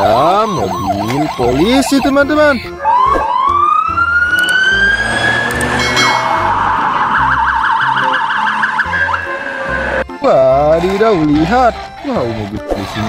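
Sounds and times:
police siren wailing and yelping: 0:00.0 - 0:10.0.

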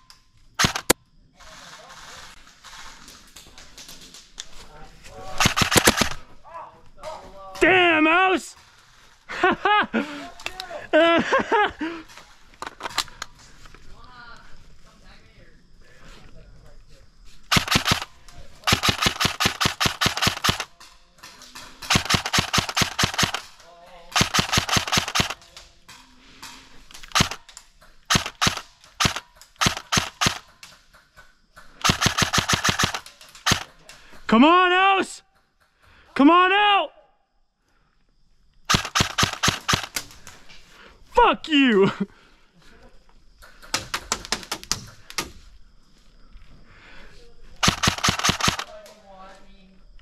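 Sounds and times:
airsoft gun shots: 0:00.6 - 0:01.0, 0:05.4 - 0:06.2, 0:17.5 - 0:20.7, 0:21.8 - 0:23.5, 0:24.2 - 0:25.4, 0:27.1 - 0:27.4, 0:28.1 - 0:30.4, 0:31.8 - 0:33.7, 0:38.7 - 0:40.0, 0:47.6 - 0:48.7.

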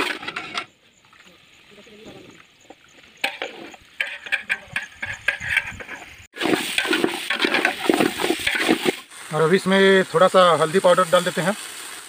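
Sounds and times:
metal spoon scraping cooking pot: 0:02.1 - 0:09.0.

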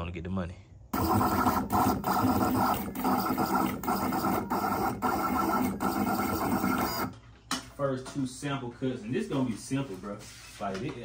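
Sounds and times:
vinyl cutter motors buzzing: 0:01.0 - 0:07.1.

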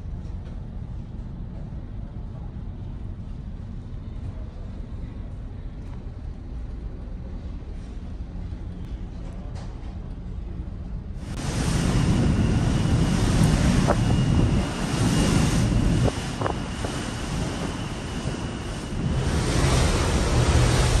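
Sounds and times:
ship engine rumble: 0:00.0 - 0:21.0
wind and sea rushing: 0:11.2 - 0:21.0
wind buffeting microphone: 0:11.2 - 0:21.0.

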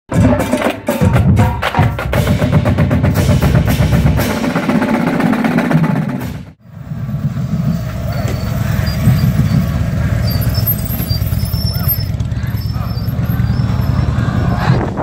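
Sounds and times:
drum-heavy music with snare rolls: 0:00.1 - 0:09.8
motorcycle engines running: 0:06.6 - 0:15.0.

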